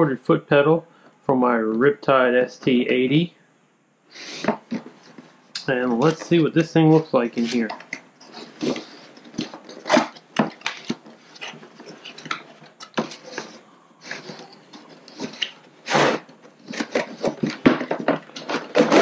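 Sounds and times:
cardboard rustling and scraping: 4.2 - 19.0.

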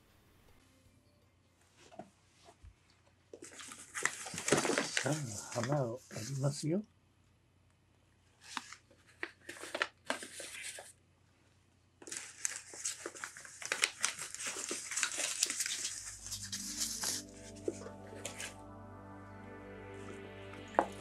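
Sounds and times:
background music: 16.0 - 21.0.

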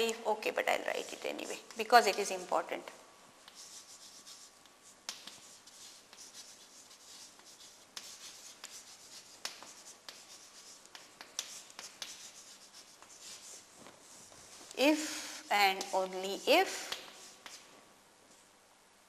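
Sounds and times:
chalk scratching on blackboard: 0.5 - 2.4, 3.4 - 17.7
chalk tapping on board: 3.4 - 14.8, 15.7 - 17.7.

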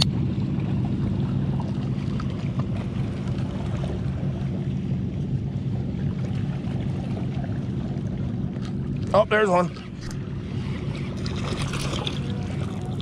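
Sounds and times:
low motor hum: 0.0 - 13.0
water noise: 0.0 - 13.0
wind: 0.0 - 13.0.

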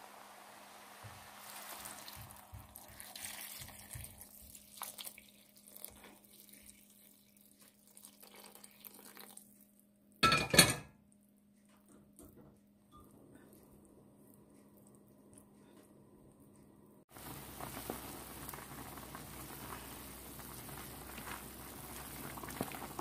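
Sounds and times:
water pouring into a pan: 0.0 - 9.6, 17.1 - 23.0
metal cookware clattering: 10.2 - 11.0.

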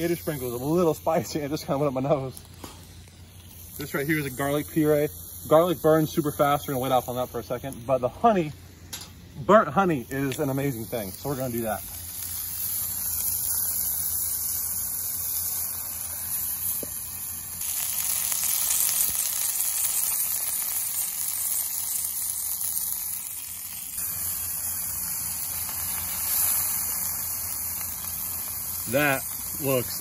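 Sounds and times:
fish sizzling in oil: 0.0 - 30.0.

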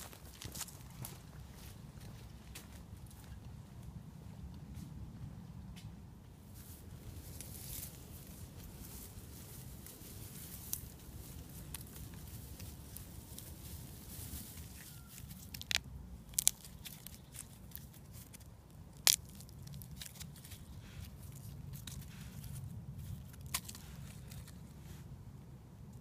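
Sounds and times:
dry grass rustling: 0.0 - 3.8, 6.3 - 25.1.

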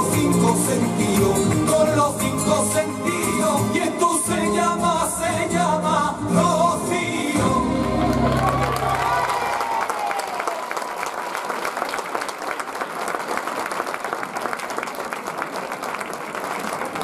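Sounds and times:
flamenco music: 0.0 - 9.8
audience applauding: 7.8 - 17.0.

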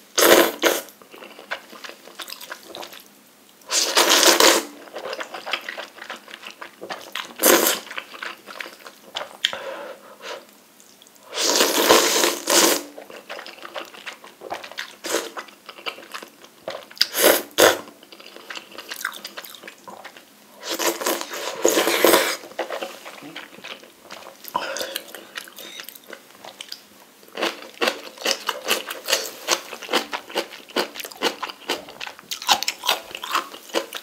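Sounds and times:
slurping noodles: 3.7 - 5.9, 11.3 - 12.9, 20.6 - 23.4.

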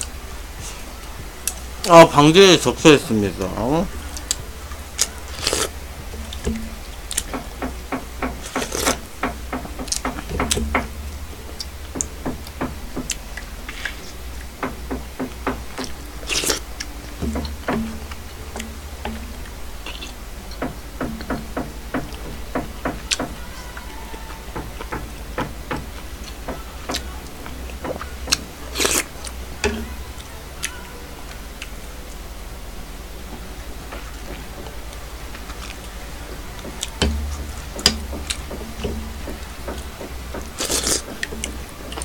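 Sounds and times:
steady low hum: 0.0 - 42.0
slurping and chewing: 4.1 - 10.7, 11.6 - 23.3, 27.8 - 29.9, 36.6 - 42.0.

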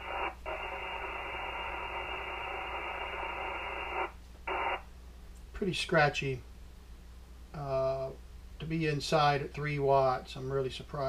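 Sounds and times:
scratchy radio hiss from speaker: 0.0 - 6.4.

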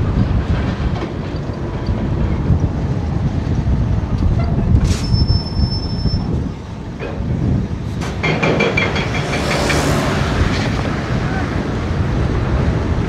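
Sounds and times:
short high-pitched squeal: 4.9 - 6.3.

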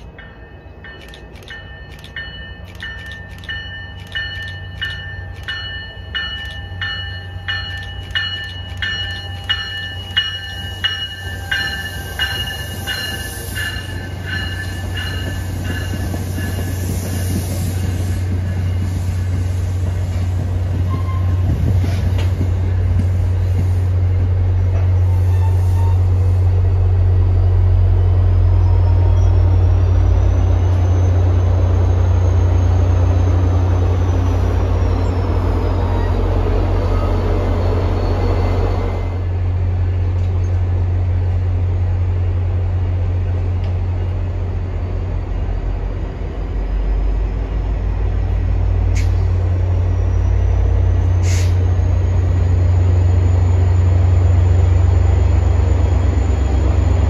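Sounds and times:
train bell ringing: 0.0 - 19.6
diesel locomotive drone: 0.0 - 57.0
train wheels rumbling on rail: 0.0 - 57.0.

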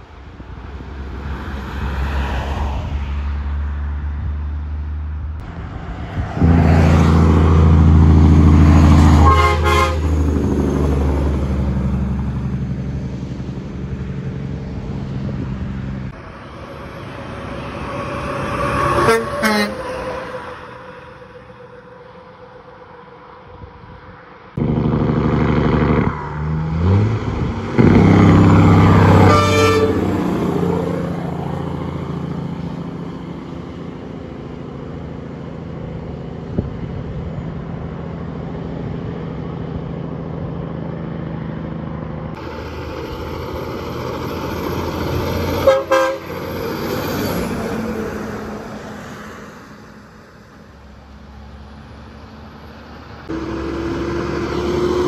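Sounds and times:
traffic passing: 0.0 - 55.0
truck horn blast: 8.8 - 10.4, 18.8 - 20.3, 27.8 - 30.8, 45.5 - 46.6, 53.3 - 55.0.

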